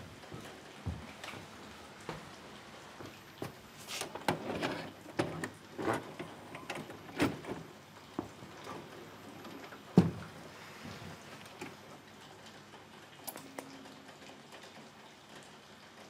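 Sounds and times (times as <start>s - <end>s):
objects knocking and clattering: 4.1s - 10.4s.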